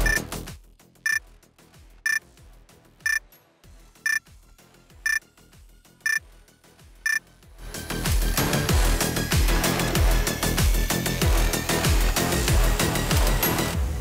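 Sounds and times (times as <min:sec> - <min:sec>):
timer short high beeps: 0:00.0 - 0:00.2.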